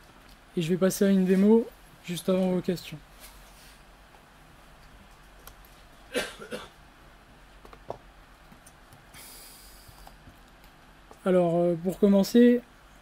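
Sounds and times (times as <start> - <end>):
short breath or throat noise: 9.1 - 10.0.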